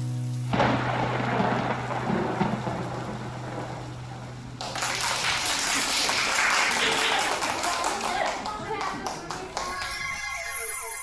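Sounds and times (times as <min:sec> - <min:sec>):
soft hiss: 0:00.0 - 0:05.2
hand clapping: 0:04.6 - 0:10.3.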